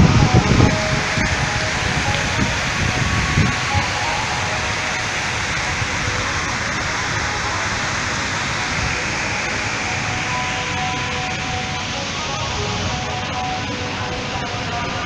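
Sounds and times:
waterfall rushing and splashing: 0.0s - 15.0s.

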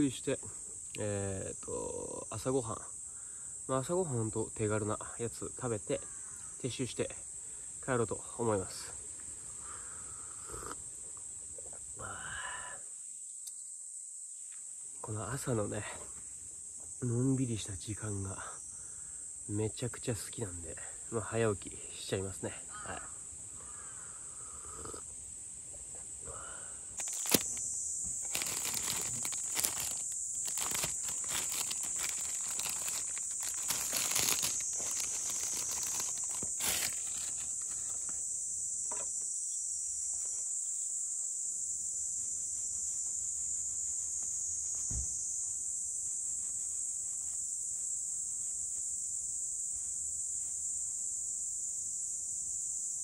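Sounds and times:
high insect drone: 0.0s - 53.0s
crinkling and rustling handling: 27.0s - 38.2s.

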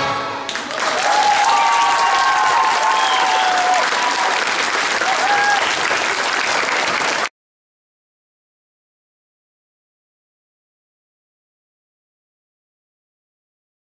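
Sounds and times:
voices cheering: 0.5s - 7.2s
audience applauding: 0.5s - 7.3s.

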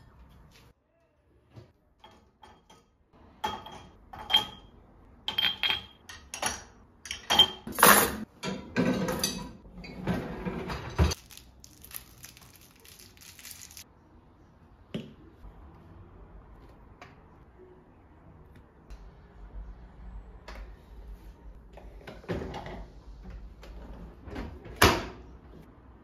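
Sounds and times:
dishes clattering: 5.3s - 11.2s.

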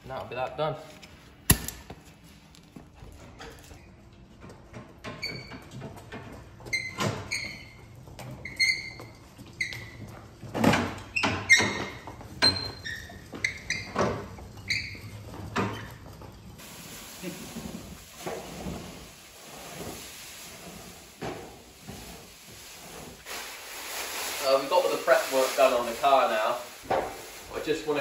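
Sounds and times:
plastic sheet rustling: 16.6s - 28.0s
steady hiss: 16.6s - 28.0s.

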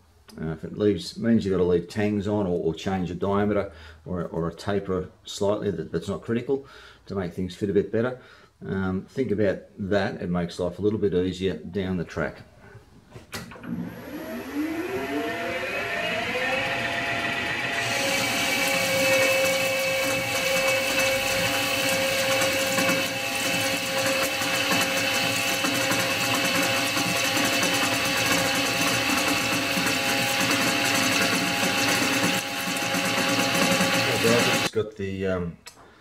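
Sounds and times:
metal lathe whine: 13.7s - 34.7s
lathe tool cutting hiss: 14.1s - 34.7s.

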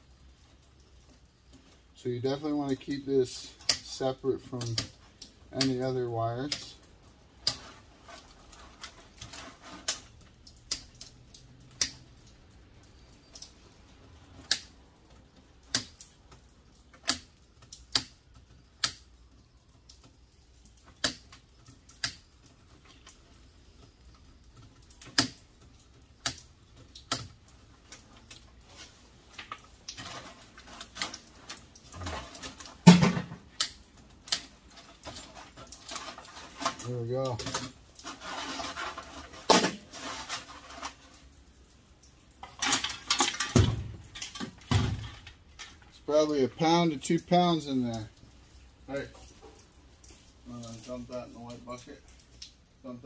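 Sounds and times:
sharp clicks and snaps: 3.6s - 3.9s, 4.6s - 5.9s, 6.5s - 7.7s, 8.8s - 28.6s, 33.5s - 38.2s, 51.5s - 52.7s
metal parts clattering: 42.4s - 45.8s.

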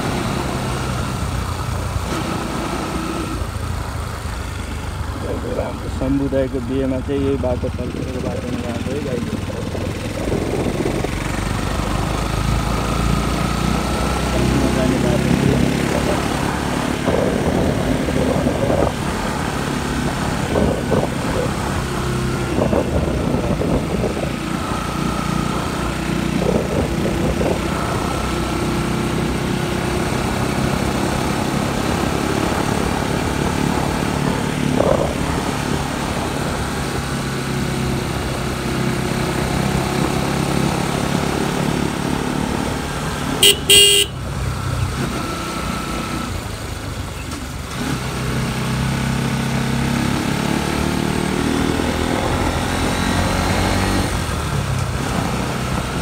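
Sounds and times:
motorcycle engine running: 0.0s - 47.7s
motorcycle horn blasts: 43.4s - 44.2s.

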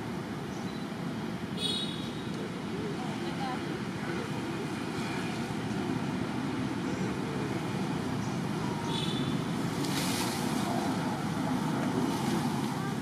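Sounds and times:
faint high chirp: 0.5s - 0.9s.

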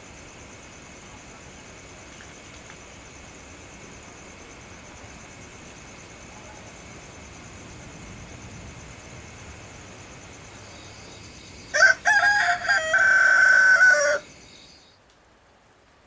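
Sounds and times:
faint steady hiss: 0.0s - 16.0s
rooster crowing: 11.6s - 14.8s.

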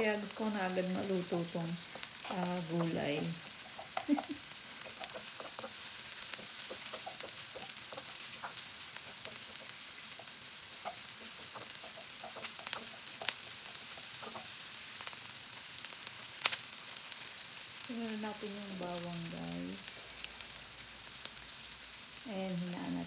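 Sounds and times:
onions sizzling in oil: 0.0s - 23.0s
wooden spoon ticks and taps: 1.9s - 14.5s.

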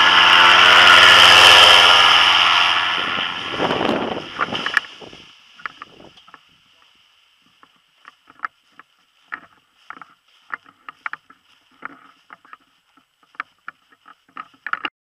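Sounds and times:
camera knocks and rustles: 8.0s - 14.9s.

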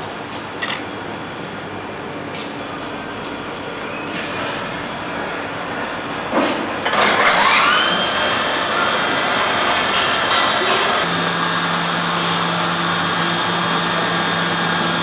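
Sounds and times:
workshop machinery hum: 0.0s - 15.0s
milling machine spindle whine: 6.9s - 15.0s.

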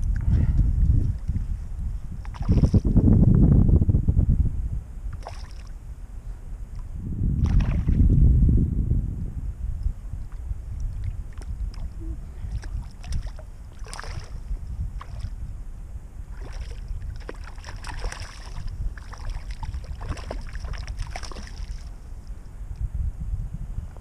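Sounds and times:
steady low rumble: 0.0s - 24.0s
fish splashing at water surface: 12.6s - 14.4s, 16.4s - 21.9s.

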